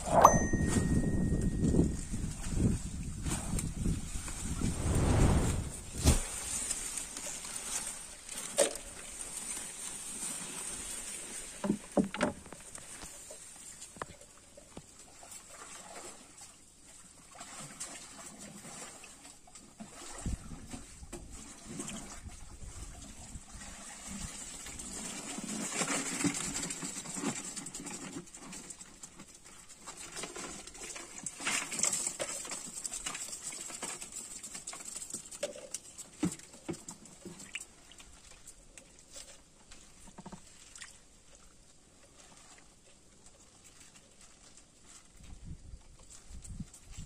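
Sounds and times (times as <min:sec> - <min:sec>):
water dripping and splashing: 0:32.6 - 0:42.8.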